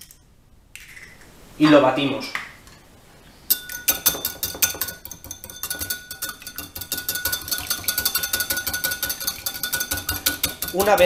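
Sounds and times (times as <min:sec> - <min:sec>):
faint bowl ringing: 0:03.5 - 0:11.0
whisk clinking in ceramic bowl: 0:03.5 - 0:11.0.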